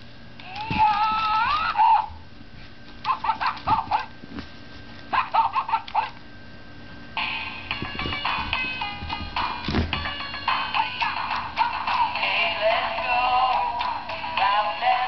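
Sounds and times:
puppy yapping: 0:03.0 - 0:04.1, 0:05.1 - 0:06.2.

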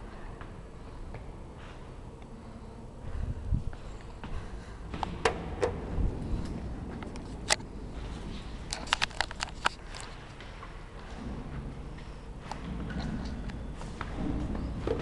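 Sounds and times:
sharp clicks and knocks: 0:08.7 - 0:10.2.

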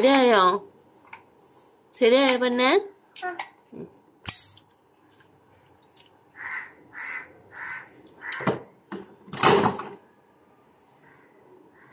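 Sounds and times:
crow cawing: 0:06.3 - 0:08.5, 0:11.0 - 0:11.9.

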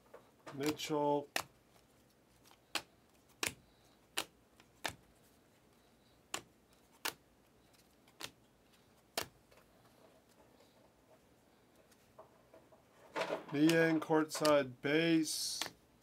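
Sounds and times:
trading cards clicking: 0:00.5 - 0:01.6, 0:02.4 - 0:05.1, 0:06.2 - 0:08.4, 0:09.0 - 0:09.5, 0:13.5 - 0:14.7, 0:15.4 - 0:15.8.

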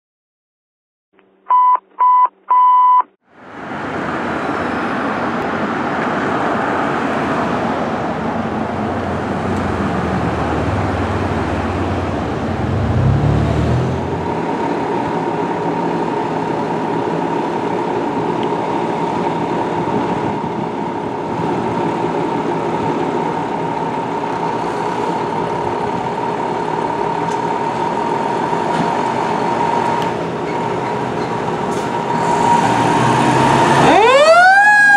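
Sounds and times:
short electronic beeps: 0:01.5 - 0:03.1
diesel engine running: 0:03.4 - 0:34.8.

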